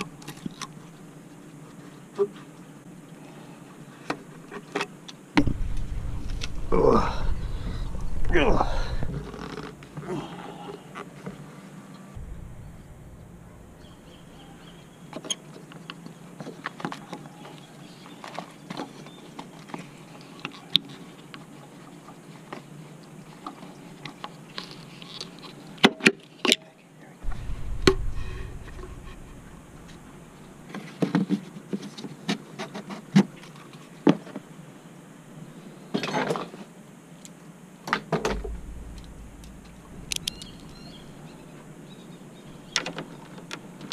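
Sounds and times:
low rumble: 0:05.4 - 0:09.4, 0:12.1 - 0:15.1, 0:27.2 - 0:30.7, 0:38.3 - 0:42.0.

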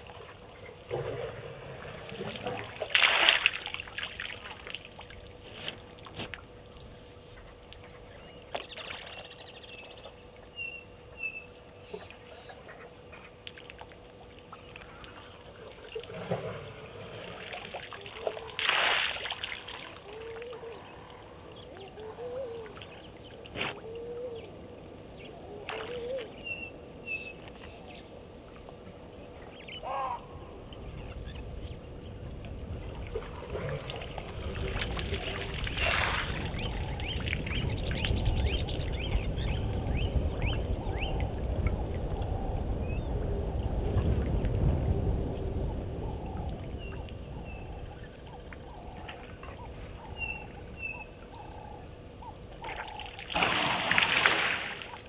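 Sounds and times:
water splashing and pouring: 0:00.9 - 0:06.4, 0:15.0 - 0:20.5, 0:32.8 - 0:37.7, 0:52.7 - 0:55.0
low rumble: 0:14.0 - 0:18.1, 0:27.7 - 0:52.6.

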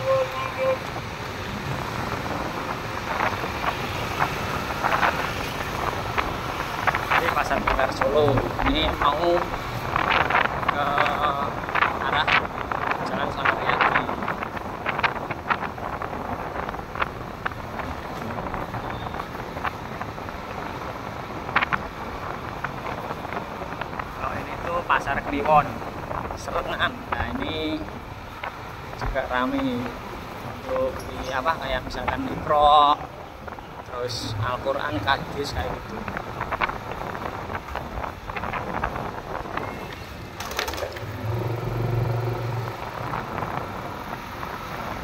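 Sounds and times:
motor scooters in traffic: 0:00.0 - 0:45.0
street and vehicle noise: 0:00.0 - 0:45.0
wind on microphone: 0:00.0 - 0:45.0.

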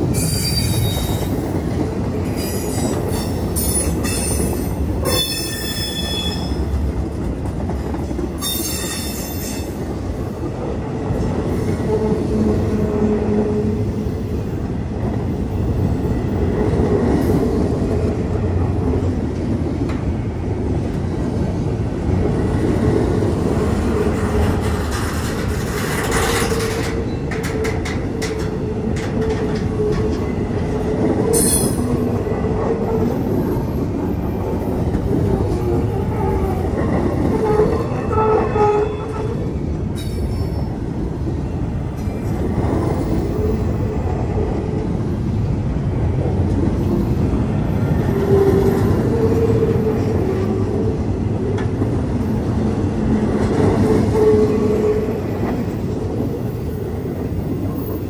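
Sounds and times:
train wheels rumbling on rail: 0:00.0 - 0:58.0
sharp clacks of train wheels: 0:24.0 - 0:35.9.

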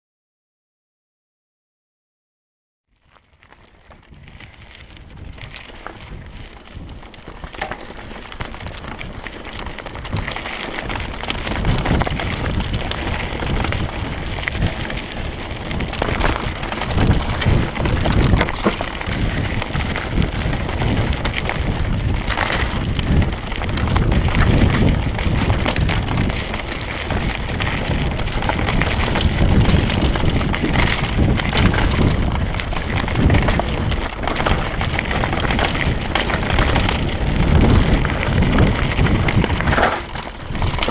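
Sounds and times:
bike tyres crunching over stones: 0:02.9 - 0:40.9
bike rattling and knocking: 0:03.0 - 0:40.9
wind rumbling on microphone: 0:03.0 - 0:40.9.

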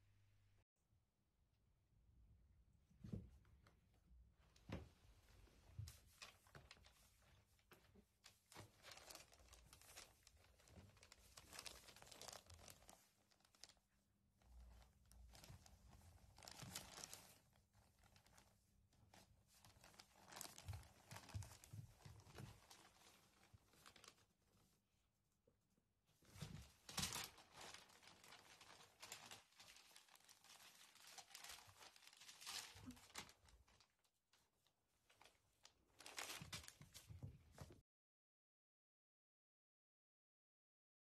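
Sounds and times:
newspaper rustling and crinkling: 0:05.8 - 0:13.8, 0:14.7 - 0:18.5, 0:19.6 - 0:24.3, 0:26.2 - 0:34.0, 0:36.0 - 0:37.8.

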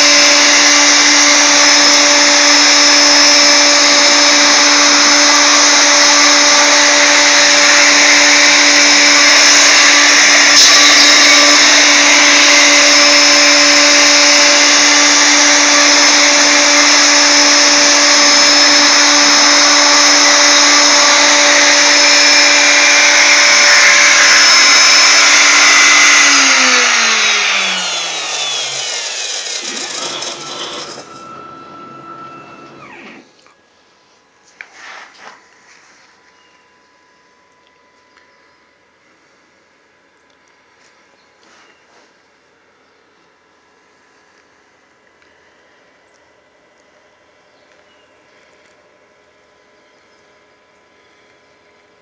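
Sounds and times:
bit cutting wood: 0:00.0 - 0:33.4
router spindle whining: 0:00.0 - 0:33.6.

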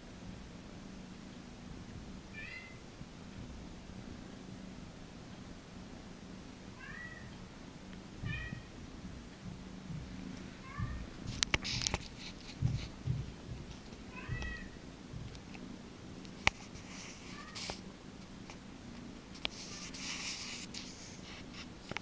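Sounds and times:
cat mewing: 0:02.3 - 0:02.8, 0:06.8 - 0:07.3, 0:08.2 - 0:08.7, 0:10.6 - 0:11.1, 0:14.1 - 0:14.8
brief rustle: 0:11.3 - 0:12.9, 0:16.3 - 0:17.8
sharp clicks: 0:11.4 - 0:12.2.

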